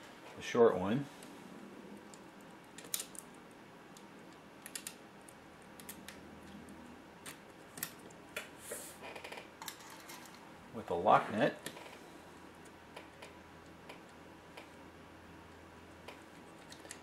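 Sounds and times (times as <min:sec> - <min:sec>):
small parts clicking: 0:02.1 - 0:03.3, 0:04.6 - 0:06.6.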